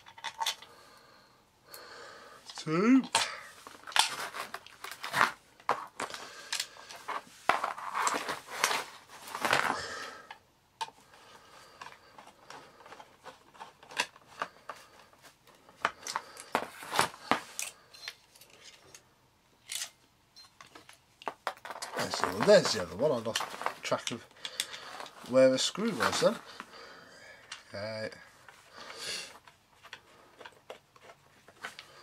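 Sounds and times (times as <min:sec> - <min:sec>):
metal and plastic clicks and scrapes: 0:02.4 - 0:09.7, 0:11.7 - 0:15.2, 0:19.6 - 0:26.7, 0:29.3 - 0:31.9.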